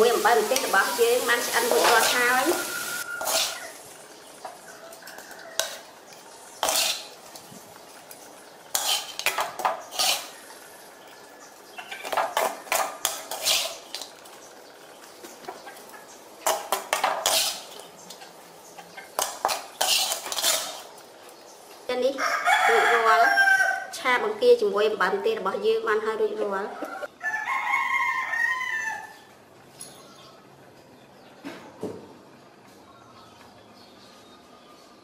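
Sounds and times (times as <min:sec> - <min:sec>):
metal spatula scraping a wok: 0:01.6 - 0:04.0, 0:05.1 - 0:07.3, 0:08.7 - 0:10.7, 0:11.9 - 0:14.2, 0:16.4 - 0:17.8, 0:19.2 - 0:21.0.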